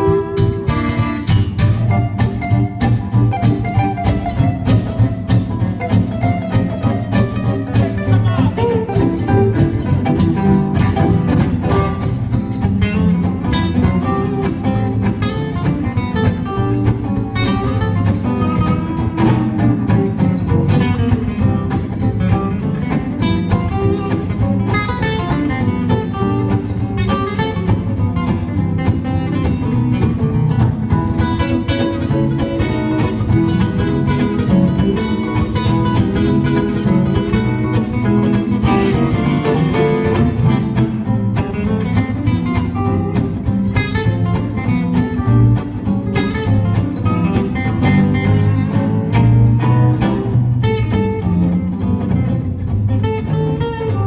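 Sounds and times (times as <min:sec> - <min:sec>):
acoustic guitars playing: 0:00.0 - 0:54.0.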